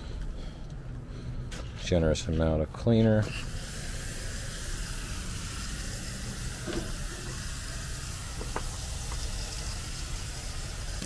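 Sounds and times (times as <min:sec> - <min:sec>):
hose sprayer hissing: 0:03.3 - 0:11.0.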